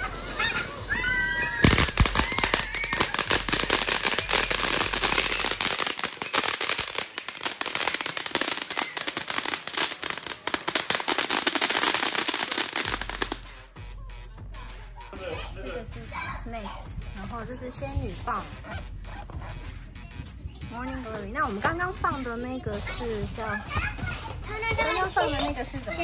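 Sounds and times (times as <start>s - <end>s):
firework fountain crackling: 0.0s - 13.7s, 20.7s - 26.0s
firework pops: 1.6s - 13.6s.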